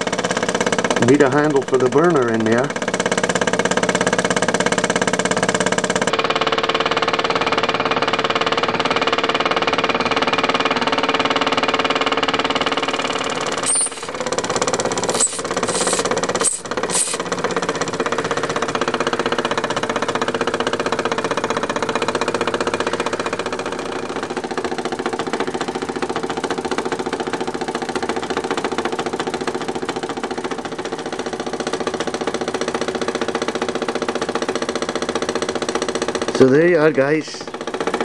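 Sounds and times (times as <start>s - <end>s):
toy steam engine running: 12.8s - 17.4s
sharp steam bursts: 13.6s - 14.2s, 15.1s - 17.2s.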